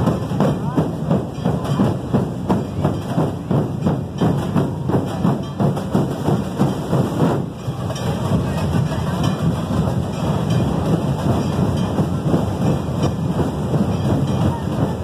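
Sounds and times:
crowd noise: 0.0s - 15.0s
street drums beating: 0.0s - 15.0s.

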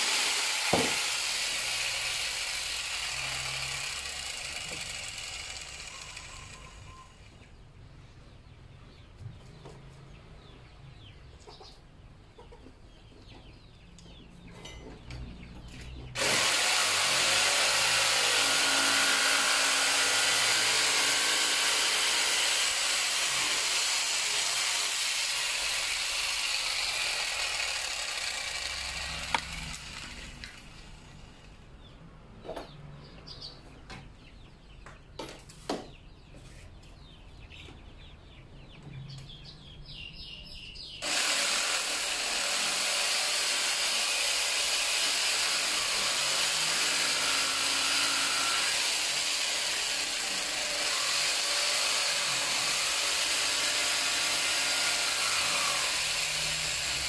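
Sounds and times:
power tool motor running: 0.0s - 7.3s, 16.2s - 31.2s, 41.0s - 57.0s.

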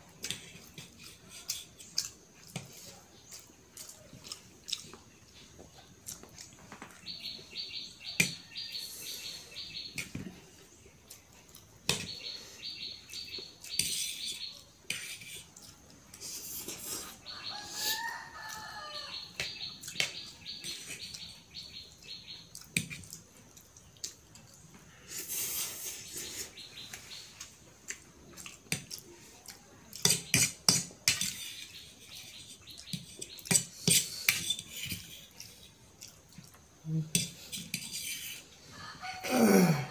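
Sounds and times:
chewing: 0.2s - 7.1s, 10.5s - 11.8s, 22.5s - 26.0s, 27.4s - 30.2s, 34.2s - 38.0s
fork scraping ceramic plate: 13.7s - 15.5s, 30.0s - 35.7s, 37.1s - 38.5s
rooster crowing: 17.3s - 19.3s, 38.7s - 39.9s.

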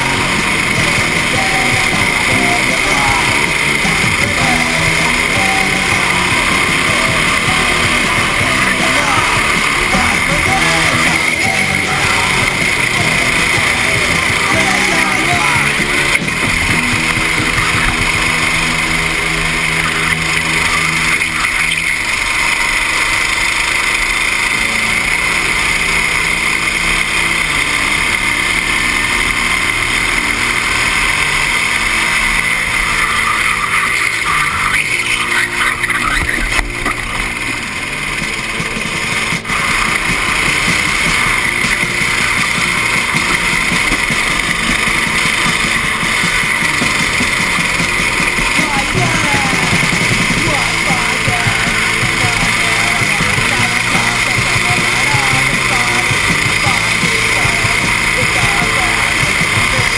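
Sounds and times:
go-kart engine running: 0.0s - 59.9s.

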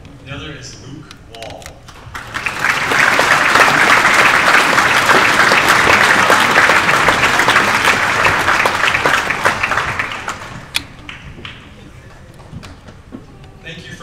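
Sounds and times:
audience applauding: 1.9s - 13.0s.

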